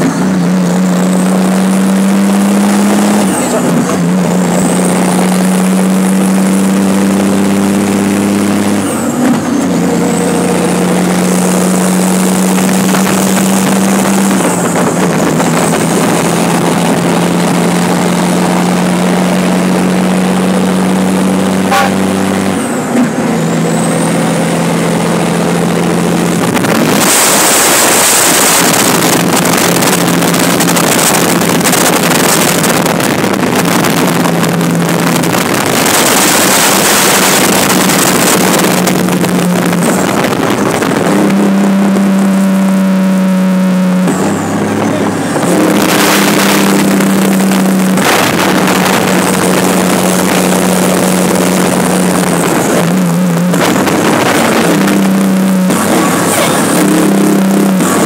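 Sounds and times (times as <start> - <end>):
truck diesel engine running: 0.0 - 58.0
wind rushing across microphone: 26.1 - 42.3, 44.1 - 58.0.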